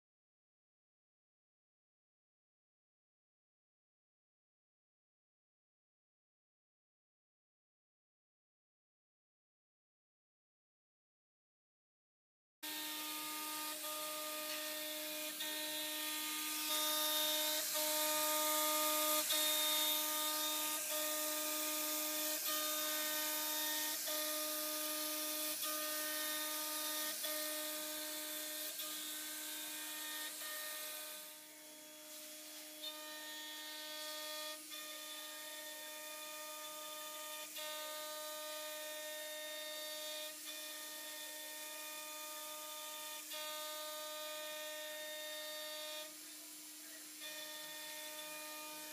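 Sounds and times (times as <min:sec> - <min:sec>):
router spindle whine: 0:12.6 - 0:48.9
hiss of cutting: 0:12.7 - 0:48.9.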